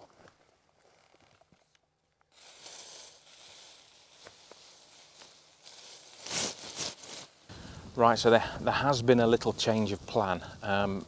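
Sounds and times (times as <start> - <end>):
rustling and scratching: 2.3 - 7.4.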